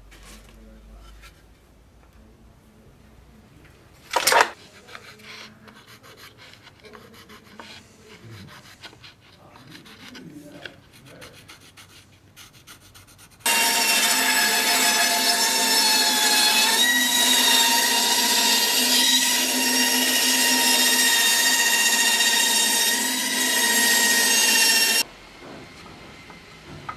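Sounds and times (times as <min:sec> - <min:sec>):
pencil scratching on wood: 0:04.6 - 0:13.5
band saw humming and whining: 0:13.5 - 0:25.0.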